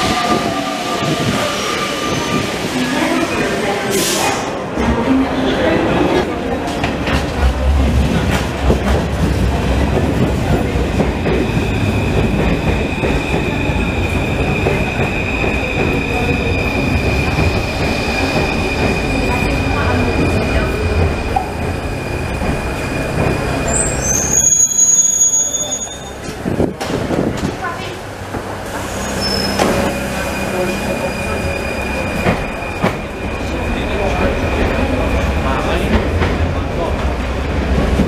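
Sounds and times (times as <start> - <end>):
high-pitched train squeal: 0.0 - 2.7, 23.1 - 26.3, 28.8 - 34.0
train rumbling on rails: 0.0 - 38.0.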